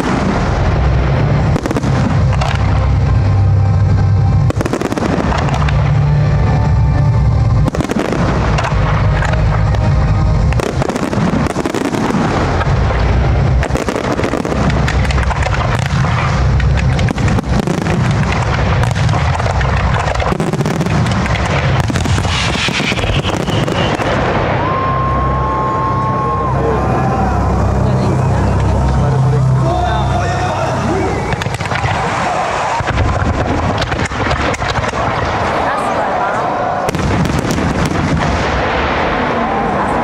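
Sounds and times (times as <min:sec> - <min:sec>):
fireworks bursting with bangs: 0:00.0 - 0:25.3, 0:31.2 - 0:40.0
music with heavy bass: 0:00.0 - 0:32.0.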